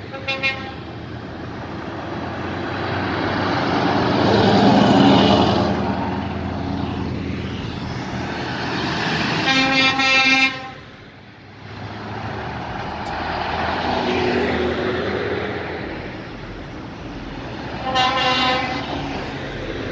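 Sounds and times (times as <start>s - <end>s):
truck air horn blast: 0.0s - 0.9s, 9.3s - 11.0s, 17.8s - 19.2s
heavy trucks driving past: 0.0s - 19.9s.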